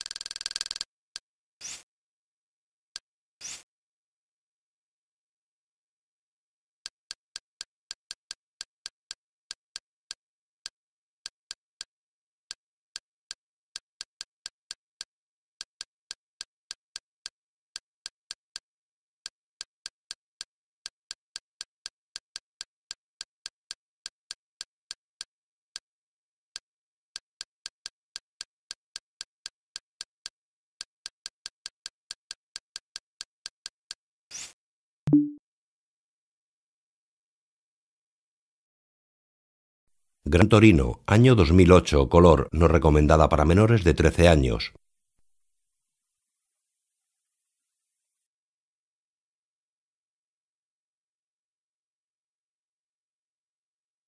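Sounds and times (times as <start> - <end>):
menu navigation clicks: 35.1 - 35.4.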